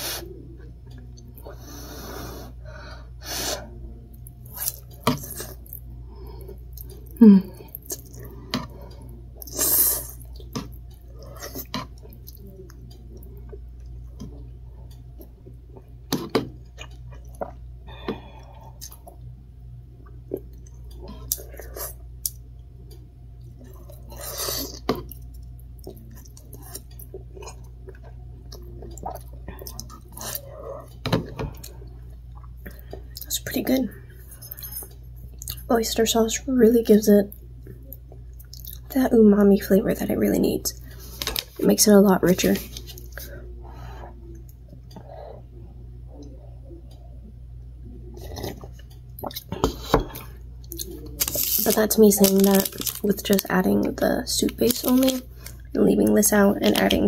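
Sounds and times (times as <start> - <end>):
person chewing: 4.1 - 19.2, 20.0 - 33.3, 34.1 - 35.7, 37.3 - 38.9, 48.0 - 57.0.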